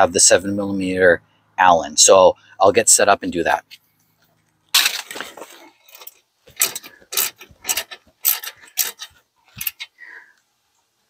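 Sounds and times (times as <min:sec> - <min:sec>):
metallic clicks and clanks of tools: 0:05.9 - 0:09.9.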